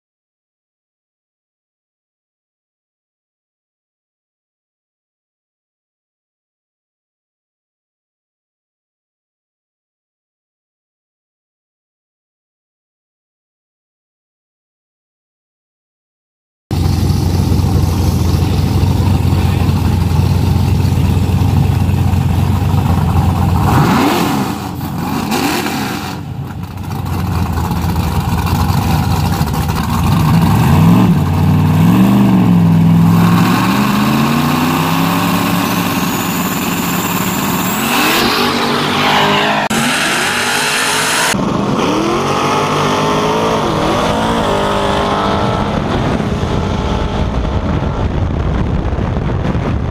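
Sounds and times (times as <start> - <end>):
race car engines revving: 16.7 - 48.2
high-revving burnout: 16.7 - 49.7.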